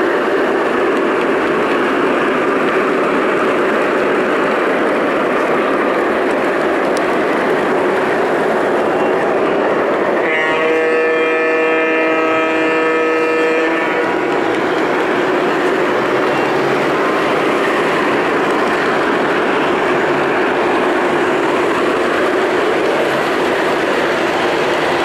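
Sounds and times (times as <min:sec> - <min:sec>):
model train rumbling on rails: 0:00.0 - 0:25.0
model train horn chord: 0:10.2 - 0:14.1.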